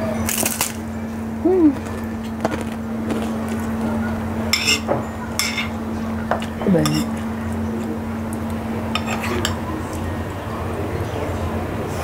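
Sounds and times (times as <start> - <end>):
steady low hum: 0.0 - 12.0
person humming: 1.4 - 1.9
spoon scraping a bowl: 4.5 - 5.8, 6.8 - 7.2, 9.0 - 9.6.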